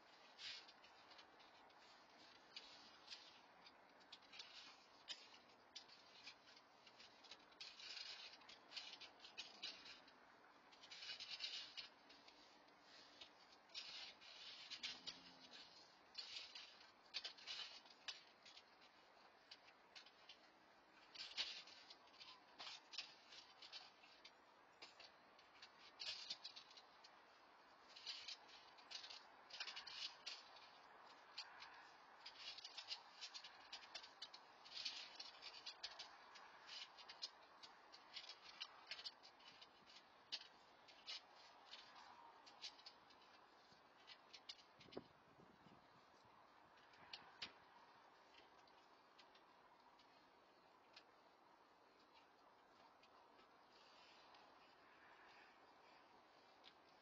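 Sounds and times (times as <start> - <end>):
faint clicking and rustling: 0.0 - 57.0.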